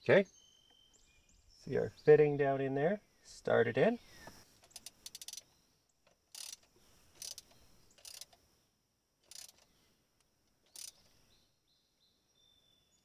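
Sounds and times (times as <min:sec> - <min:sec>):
ratchet wrench clicking: 0:04.6 - 0:05.4, 0:06.0 - 0:08.4, 0:09.2 - 0:09.6, 0:10.7 - 0:11.1.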